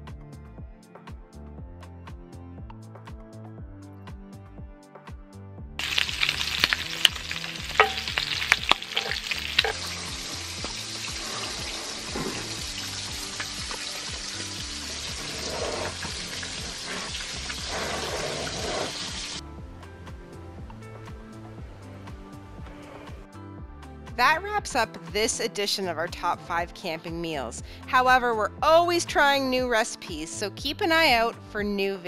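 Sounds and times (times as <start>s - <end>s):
background music: 0.0s - 32.0s
fat popping and crackling: 5.8s - 10.8s
bacon sizzling in a skillet: 5.8s - 19.4s.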